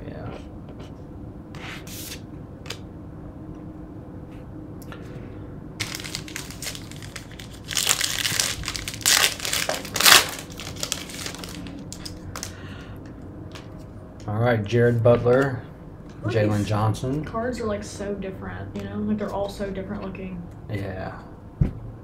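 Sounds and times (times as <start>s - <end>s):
foil wrapper crinkling and tearing: 5.8s - 12.6s.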